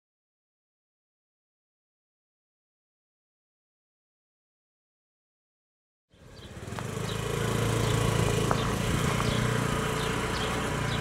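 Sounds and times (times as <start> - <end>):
motor scooter engine running: 6.1 - 11.0.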